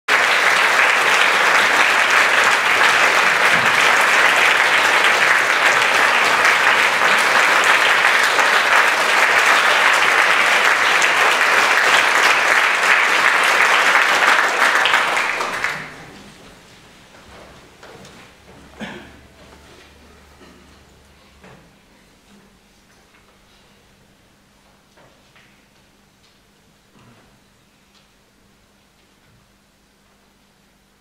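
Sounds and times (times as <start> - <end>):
audience applauding: 0.1 - 16.4.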